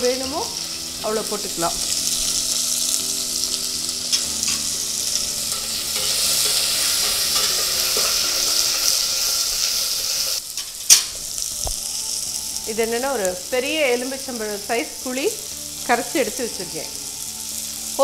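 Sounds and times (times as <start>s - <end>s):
food sizzling in oil: 0.0s - 18.0s
spoon stirring: 4.0s - 9.1s
spoon clinking on pot: 5.5s - 8.8s.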